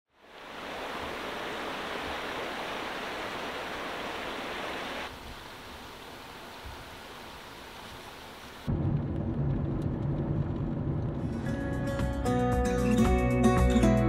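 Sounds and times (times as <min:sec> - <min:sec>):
river rushing: 0:00.2 - 0:08.7.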